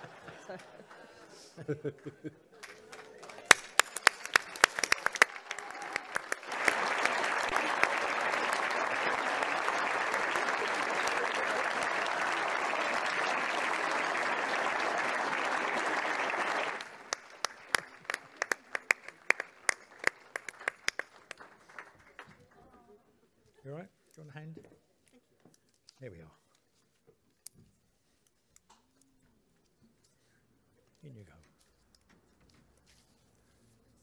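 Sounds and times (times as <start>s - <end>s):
audience applause: 0.0s - 1.3s, 2.6s - 22.7s.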